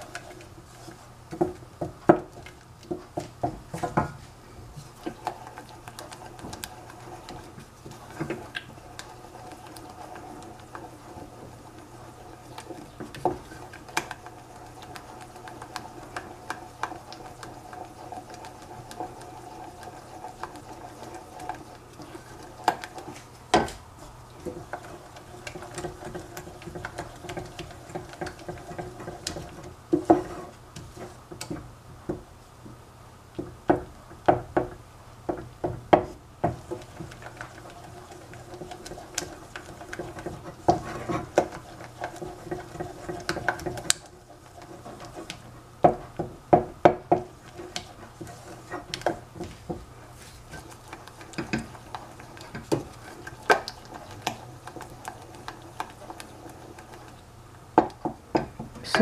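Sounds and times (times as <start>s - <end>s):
spoon scraping saucepan: 24.4s - 31.2s, 36.6s - 46.0s, 47.2s - 49.4s.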